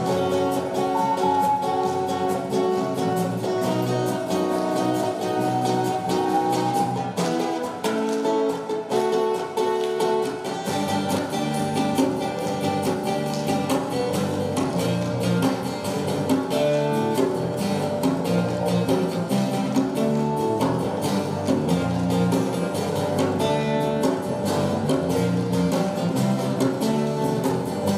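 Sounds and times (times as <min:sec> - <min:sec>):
ocarina melody: 0:00.0 - 0:11.9
acoustic guitars strumming: 0:00.0 - 0:27.9
electric bass line: 0:10.7 - 0:27.9.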